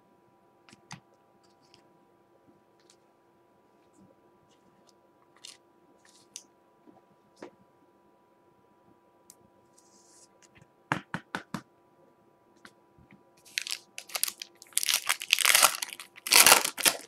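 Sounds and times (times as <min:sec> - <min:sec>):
foil wrapper tearing and crinkling: 0:13.4 - 0:17.0.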